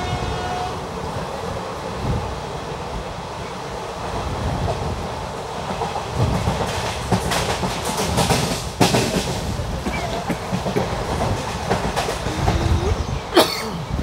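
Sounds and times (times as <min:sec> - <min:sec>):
train coach rumble: 0:00.0 - 0:14.0
wheels clacking over rail joints: 0:05.7 - 0:13.1.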